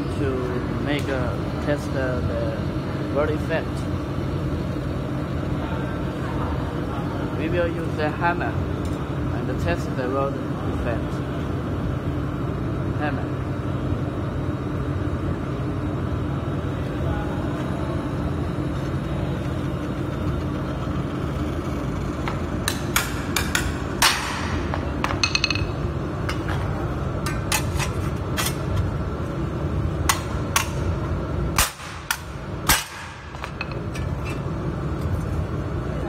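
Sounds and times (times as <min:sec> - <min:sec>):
steady low hum: 0:00.0 - 0:36.0
hammer striking metal plate: 0:22.6 - 0:25.7, 0:31.6 - 0:33.8.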